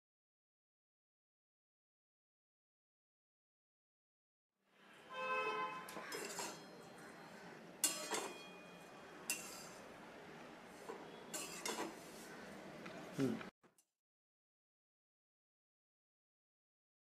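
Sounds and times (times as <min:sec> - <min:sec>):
spatula scraping metal pan: 0:05.5 - 0:10.0, 0:10.6 - 0:12.6.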